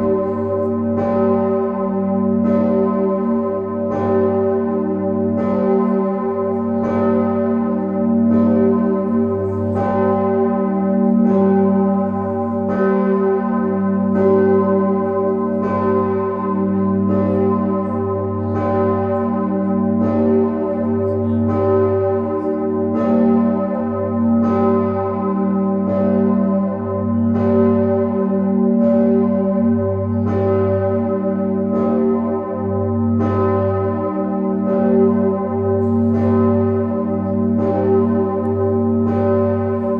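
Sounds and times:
large church bell ringing: 0:00.0 - 0:39.9.

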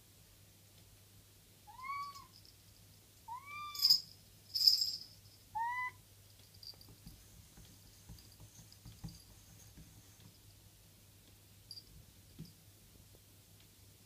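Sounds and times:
cat meowing: 0:01.7 - 0:02.3, 0:03.3 - 0:03.9, 0:05.6 - 0:06.0.

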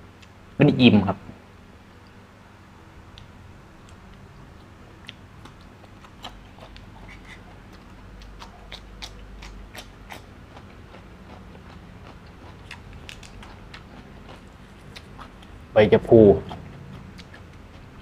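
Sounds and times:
man chewing crunchy food: 0:03.9 - 0:15.7, 0:16.4 - 0:18.0.

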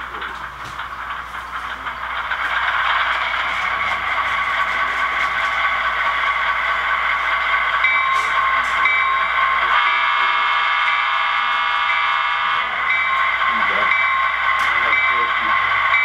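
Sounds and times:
model diesel engine rumble: 0:00.0 - 0:10.8.

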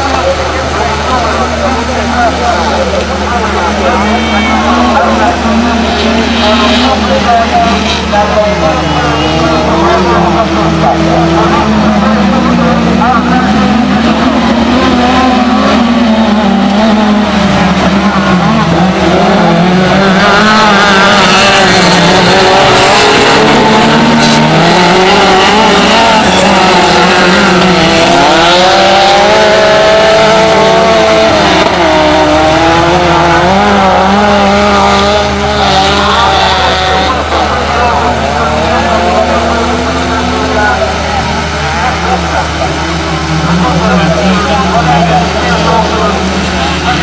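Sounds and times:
race car engines revving: 0:00.0 - 0:47.0.

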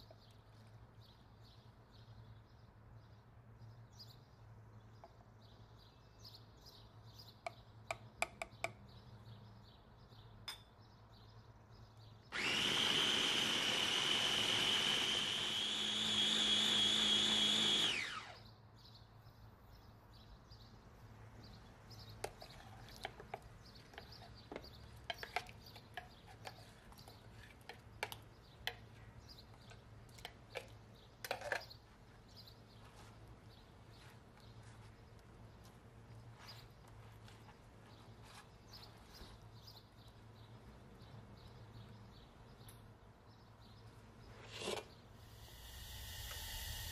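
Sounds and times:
blender motor whining: 0:12.3 - 0:18.4, 0:44.6 - 0:46.9.

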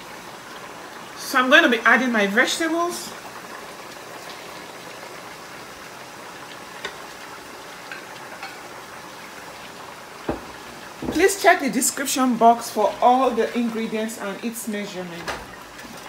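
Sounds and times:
sauce bubbling in a pot: 0:00.0 - 0:16.0.

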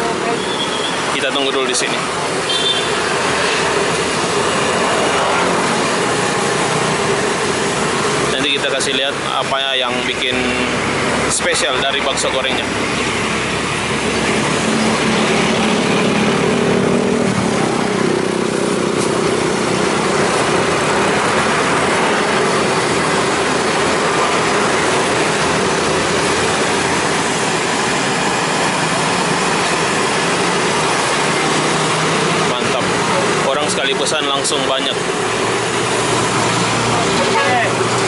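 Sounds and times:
roadside traffic noise: 0:00.0 - 0:38.0
vehicle engine passing: 0:00.0 - 0:38.0.

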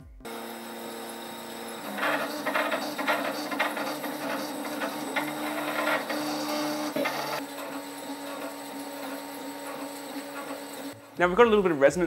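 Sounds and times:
stepper motor tones: 0:00.2 - 0:11.2
rattling buzzes: 0:00.3 - 0:11.2.

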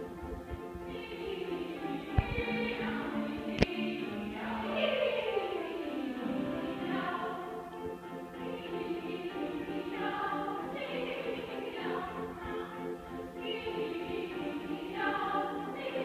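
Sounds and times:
women's choir singing: 0:00.0 - 0:16.0.

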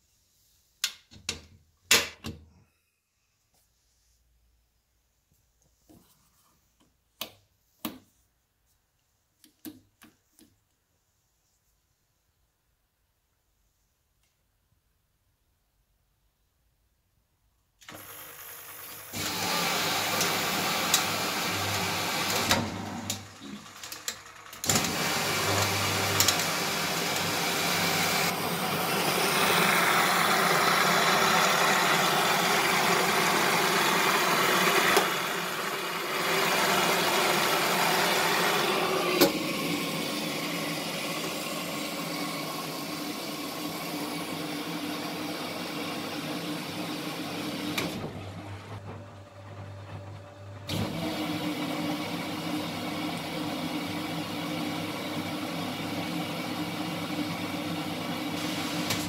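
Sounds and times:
water rushing into washing machine: 0:17.8 - 0:59.0.

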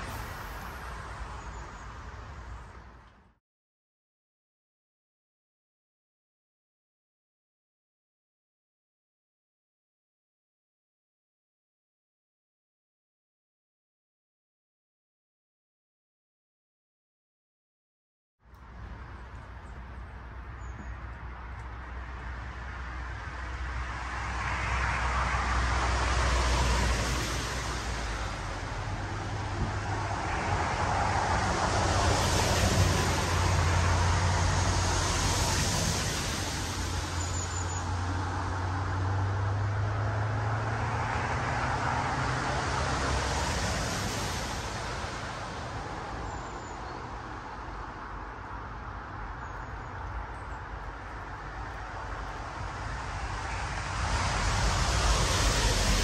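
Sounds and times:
road traffic passing: 0:00.0 - 0:03.4, 0:18.4 - 0:56.0.

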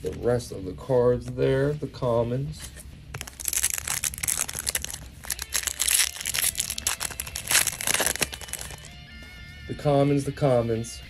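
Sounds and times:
foil wrapper crinkling: 0:03.2 - 0:08.9.

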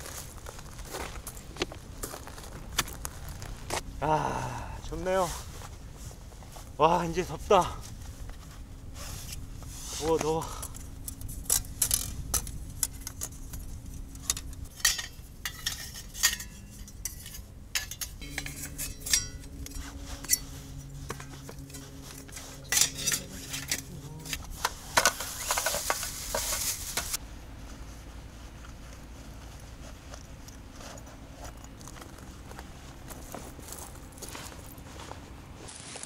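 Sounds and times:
cookware and utensils clattering: 0:21.6 - 0:24.4.

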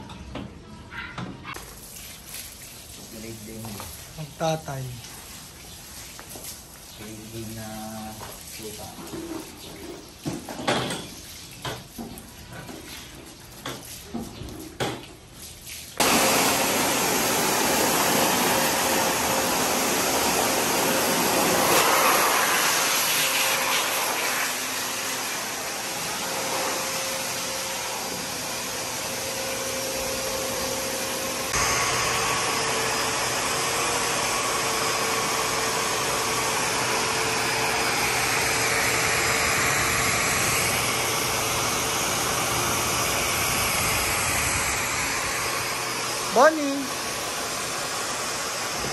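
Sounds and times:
pet dryer blowing air: 0:16.0 - 0:48.9.

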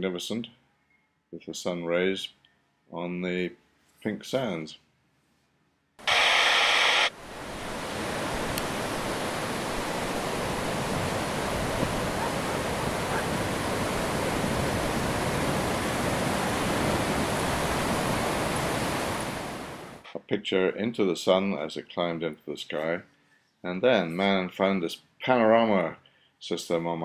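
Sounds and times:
loud burst of hiss: 0:06.1 - 0:07.2
waves washing on sand beach: 0:06.1 - 0:20.0.

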